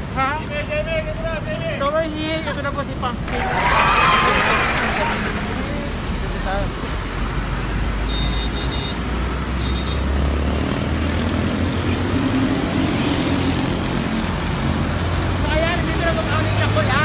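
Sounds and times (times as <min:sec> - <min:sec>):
traffic driving past: 0:03.1 - 0:17.0.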